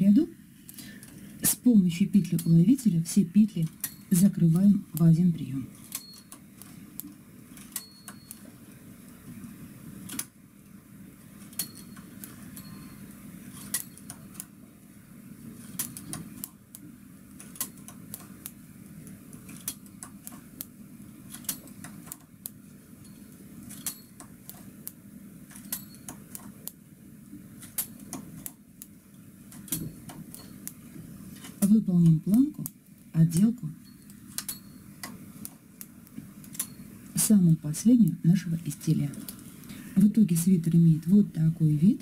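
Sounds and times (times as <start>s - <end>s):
faint low hum: 35.4s - 42.0s.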